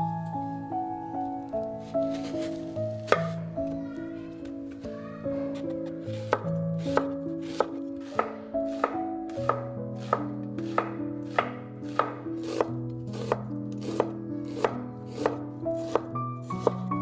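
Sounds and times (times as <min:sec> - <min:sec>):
knife slicing onion: 0:06.0 - 0:16.9.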